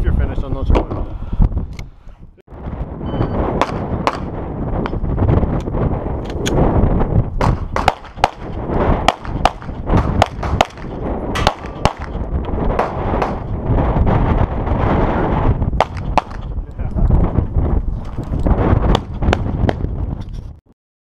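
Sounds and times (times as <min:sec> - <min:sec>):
low rumble: 0:02.5 - 0:20.2
handgun shots: 0:07.4 - 0:08.5, 0:09.1 - 0:12.2.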